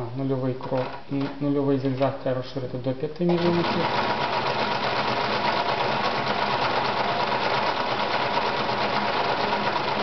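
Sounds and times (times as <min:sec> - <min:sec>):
sewing machine motor hum: 0:03.3 - 0:10.0
sewing machine needle clatter: 0:03.3 - 0:10.0.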